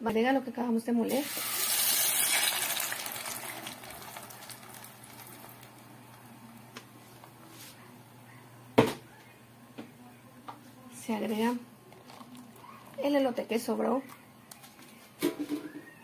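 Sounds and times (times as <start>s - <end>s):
sauce sizzling in hot oil: 1.1s - 5.9s.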